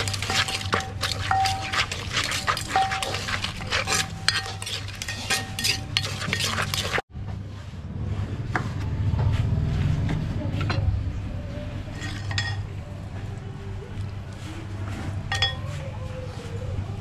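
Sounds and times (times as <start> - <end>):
metal spoon scraping clay mortar: 0.0 - 7.0, 11.9 - 12.6.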